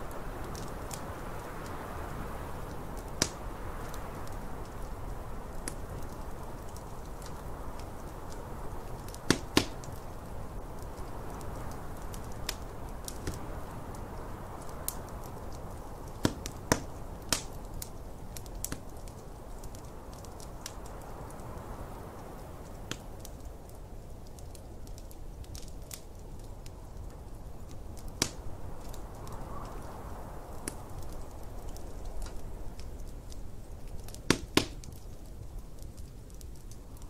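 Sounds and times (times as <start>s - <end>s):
snowstorm wind rushing: 0.0s - 16.1s, 28.4s - 32.8s
fire pops: 0.0s - 37.0s
wood fire crackling: 0.0s - 37.0s.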